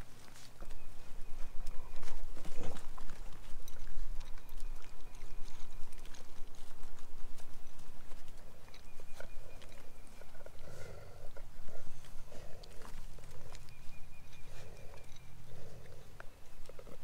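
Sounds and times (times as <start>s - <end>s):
puppies eating dry kibble: 0.0s - 17.0s.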